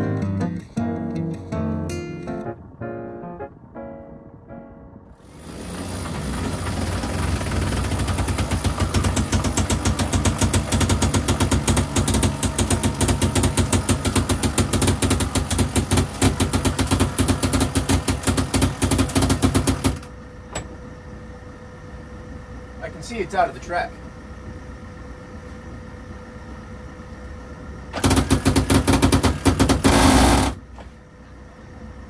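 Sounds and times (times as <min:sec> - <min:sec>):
steady hum: 0:00.0 - 0:32.0
motor knocking rhythmically: 0:05.2 - 0:20.2, 0:27.9 - 0:30.6.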